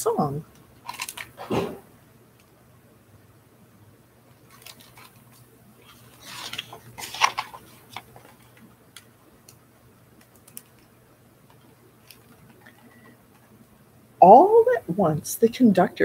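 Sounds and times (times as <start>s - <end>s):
paper page rustling: 4.4s - 8.7s.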